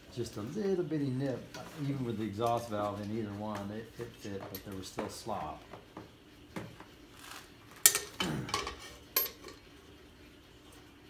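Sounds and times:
metal parts clinking: 7.9s - 9.6s.

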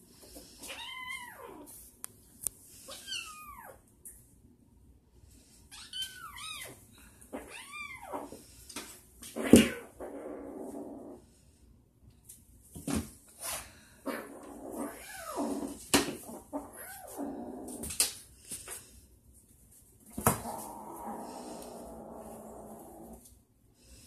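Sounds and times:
cats growling and yowling: 0.6s - 1.7s, 5.8s - 8.4s, 9.2s - 11.3s, 14.0s - 18.0s, 20.2s - 23.3s.

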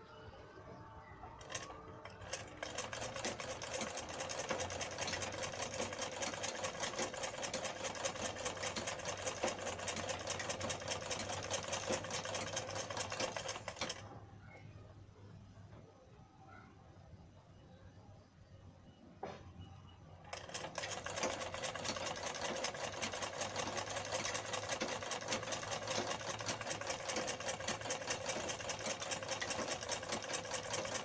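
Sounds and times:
sewing machine stitching: 1.4s - 14.2s, 20.2s - 31.0s.

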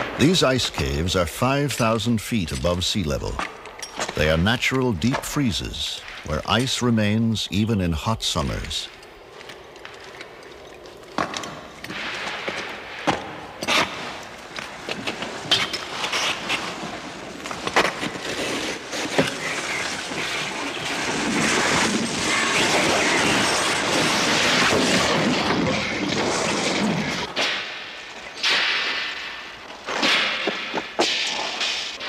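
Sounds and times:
scraping rush on ice: 13.7s - 27.6s.

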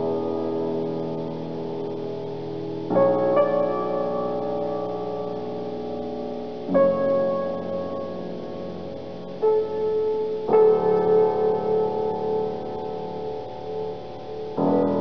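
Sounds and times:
piano playing slow chords: 0.0s - 15.0s.

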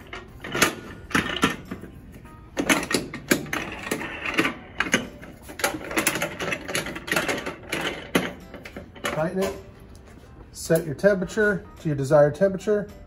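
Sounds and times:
metal clamps clicking and rattling: 0.0s - 2.0s, 2.6s - 9.6s.

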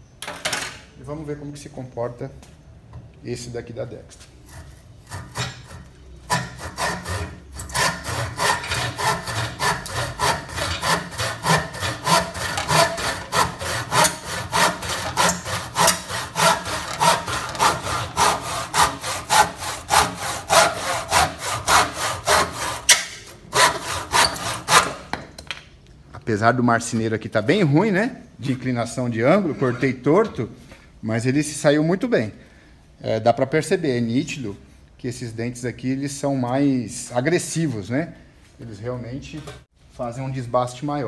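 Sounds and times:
hand saw sawing wood: 4.5s - 25.1s.

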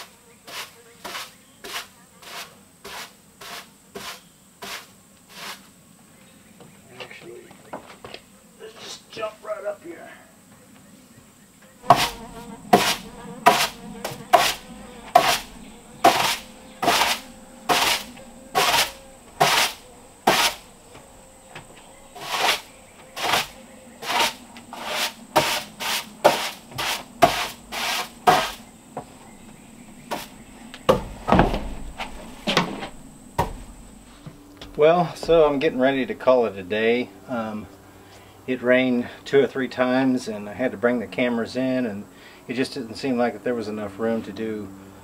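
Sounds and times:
broom sweeping wooden planks: 0.0s - 5.7s, 11.8s - 36.0s.

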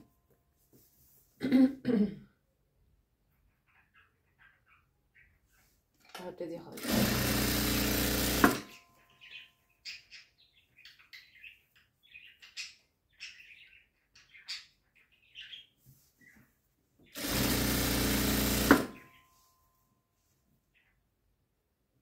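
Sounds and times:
sewing machine stitching: 6.8s - 8.8s, 17.2s - 19.0s.

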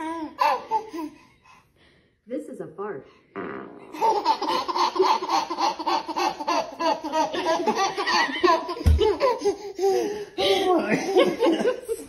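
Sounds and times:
baby laughing: 0.0s - 1.2s, 3.9s - 12.0s
fart sound from speaker: 3.3s - 4.2s.

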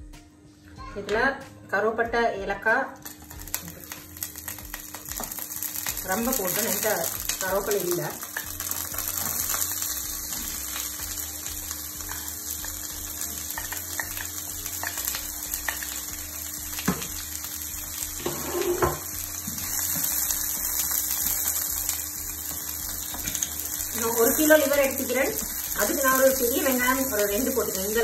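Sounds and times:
oil sizzling in a frying pan: 3.0s - 28.0s
onions scraped into a pan: 18.2s - 20.3s.

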